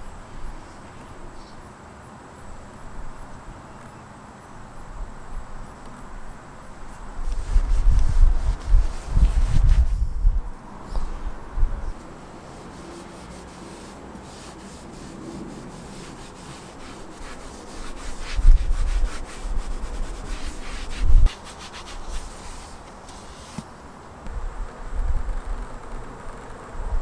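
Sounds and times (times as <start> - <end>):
scrubbing strokes on surface: 7.2 - 10.0, 11.9 - 23.7.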